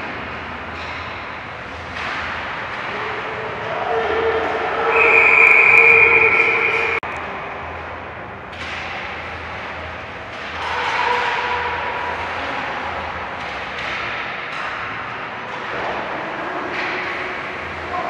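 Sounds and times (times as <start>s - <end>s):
skating and arena noise: 0.0s - 18.0s
skates sticks and puck scraping: 8.5s - 18.0s.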